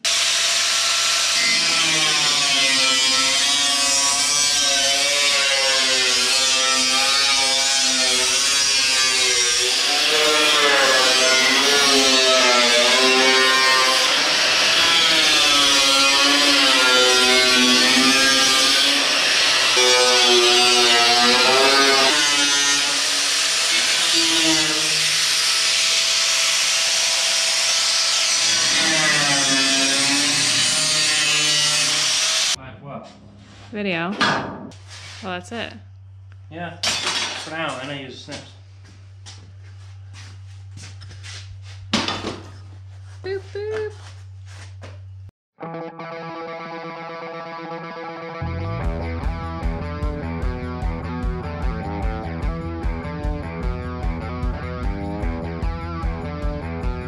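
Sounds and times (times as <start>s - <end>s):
angle grinder grinding metal: 0.0s - 32.6s.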